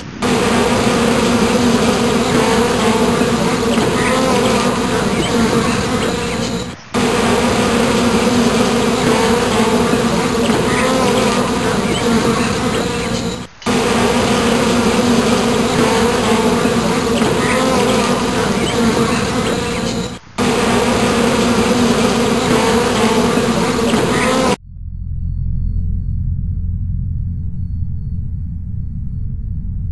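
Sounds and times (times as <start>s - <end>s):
bees buzzing: 0.0s - 24.6s.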